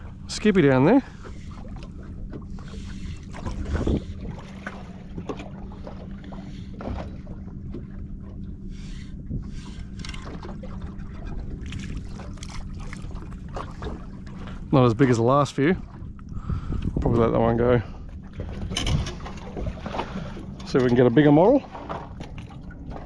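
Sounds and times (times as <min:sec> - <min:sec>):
steady low hum: 0:00.0 - 0:23.0
clicks and knocks of fishing gear: 0:09.8 - 0:10.6, 0:18.5 - 0:21.0.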